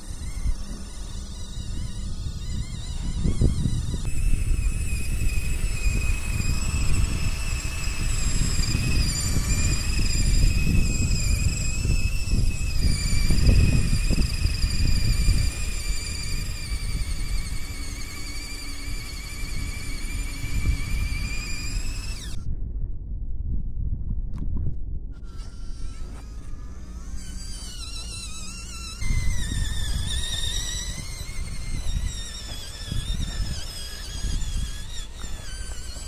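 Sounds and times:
small electric motor whining: 0.0s - 22.5s, 25.1s - 36.0s
low rumble: 22.2s - 25.2s.

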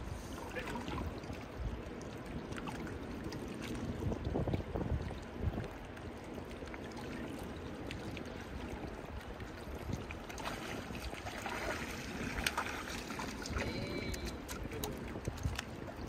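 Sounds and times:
wind on microphone: 3.5s - 5.9s, 8.4s - 16.0s
river water rushing: 10.1s - 14.5s.

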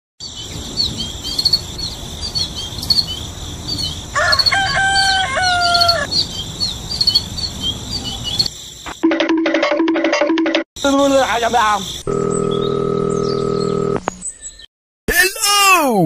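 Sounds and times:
small birds chirping: 0.2s - 9.0s, 10.8s - 14.7s
rooster crowing: 4.1s - 6.2s
high insect drone: 10.8s - 14.0s.

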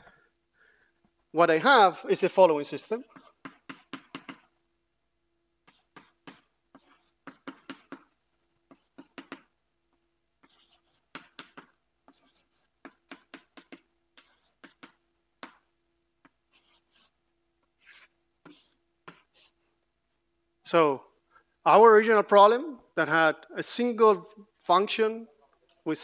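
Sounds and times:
chalk scratching on a chalkboard: 2.9s - 4.5s, 5.6s - 9.5s, 10.4s - 15.6s, 16.5s - 17.2s, 17.8s - 19.8s.

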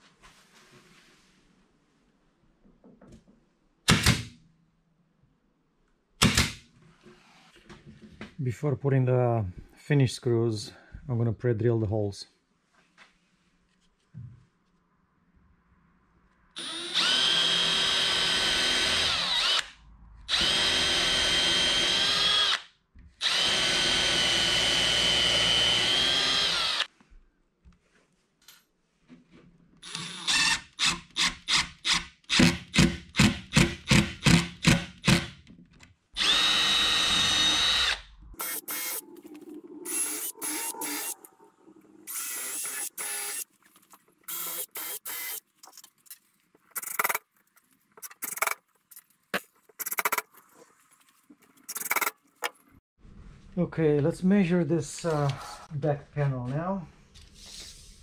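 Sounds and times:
cordless drill whining: 16.6s - 22.6s, 23.2s - 26.9s, 29.8s - 31.6s, 36.2s - 39.0s, 39.9s - 41.2s, 42.1s - 43.5s, 44.3s - 45.4s
impact driver driving screws: 44.3s - 45.4s, 46.8s - 47.2s, 49.8s - 50.3s.

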